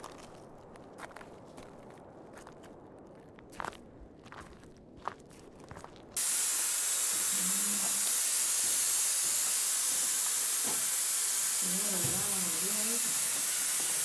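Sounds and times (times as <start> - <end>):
soft footsteps: 0.0 - 6.2
pneumatic rock drill air hiss: 6.2 - 14.0.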